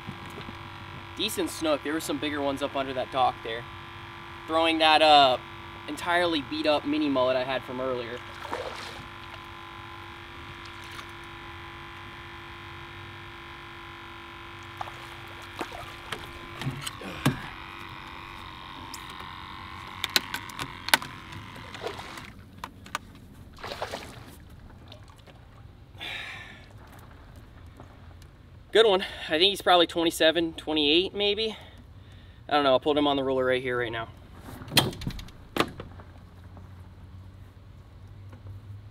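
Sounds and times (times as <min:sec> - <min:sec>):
steady multi-tone whine: 0:00.0 - 0:23.6
fish splashing in water: 0:08.2 - 0:09.2, 0:23.6 - 0:25.6
sharp clicks: 0:16.1 - 0:23.1.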